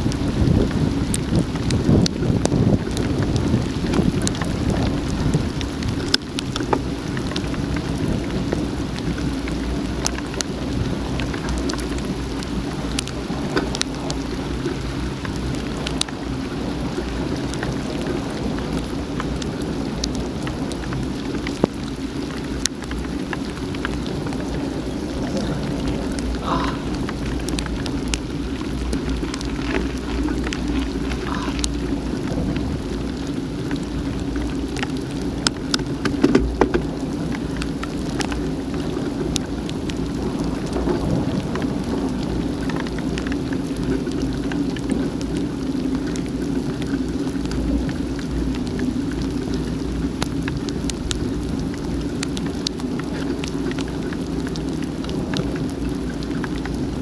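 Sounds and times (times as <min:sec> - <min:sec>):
heavy rain rumble: 0:00.0 - 0:57.0
raindrops ticking on camera housing: 0:00.0 - 0:57.0.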